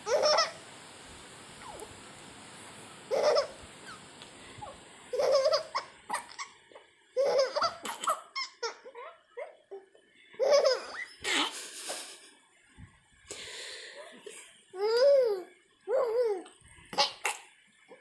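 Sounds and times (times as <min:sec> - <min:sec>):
baby giggling: 0:03.1 - 0:04.0, 0:04.6 - 0:06.6, 0:07.2 - 0:12.2, 0:14.8 - 0:17.4.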